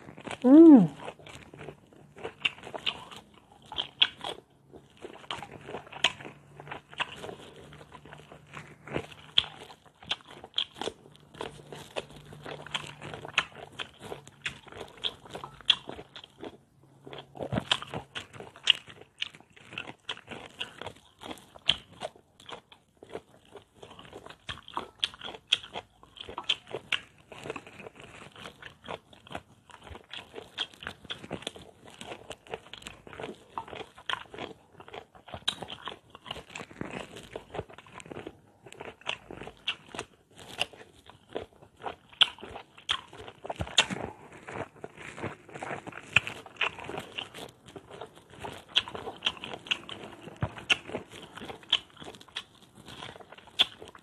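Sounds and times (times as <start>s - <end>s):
wet mouth sounds: 0.0s - 1.5s, 42.1s - 54.0s
person biting and chewing: 0.0s - 54.0s.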